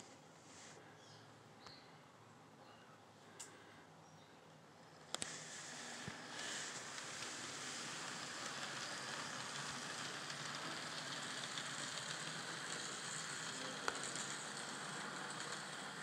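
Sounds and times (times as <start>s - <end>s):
click: 3.4s - 3.6s
model train motors whirring: 4.8s - 16.0s.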